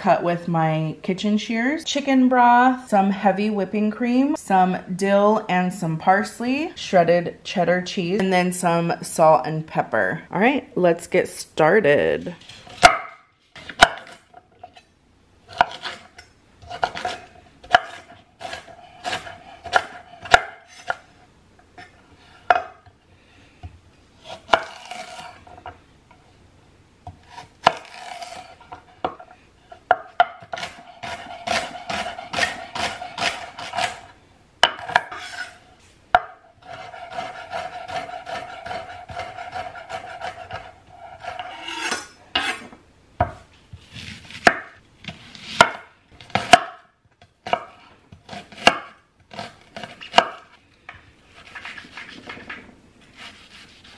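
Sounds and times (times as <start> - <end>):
knife chopping on wooden board: 12.8 - 14.2, 16.7 - 21.0, 29.9 - 34.0, 36.2 - 46.8, 47.4 - 50.4.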